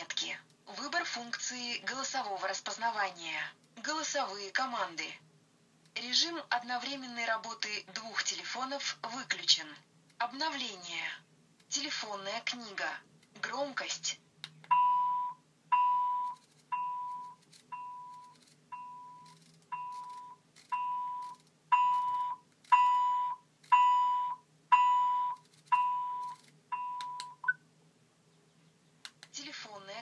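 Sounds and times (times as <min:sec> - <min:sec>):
speakerphone beeping: 0:14.7 - 0:27.6.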